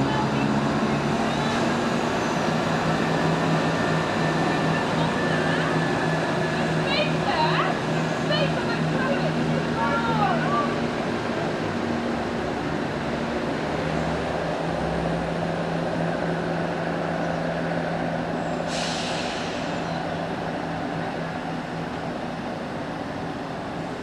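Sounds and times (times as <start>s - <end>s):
train diesel engines running: 0.0s - 24.0s
hiss of released air: 18.6s - 19.9s.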